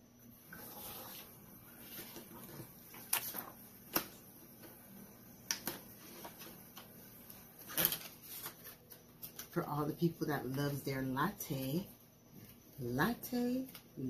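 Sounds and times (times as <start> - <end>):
plastic film crinkling: 5.6 - 9.6.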